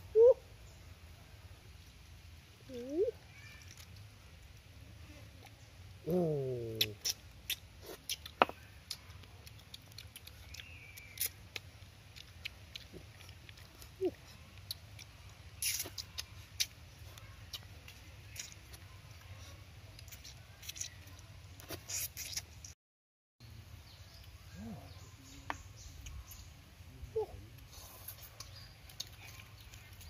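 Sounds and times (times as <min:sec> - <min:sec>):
lip smacks: 0:06.6 - 0:19.3, 0:19.9 - 0:22.8, 0:27.6 - 0:30.0
person chewing: 0:06.6 - 0:22.8, 0:27.6 - 0:30.0
wet clicks of eating: 0:06.7 - 0:22.5, 0:27.6 - 0:30.0.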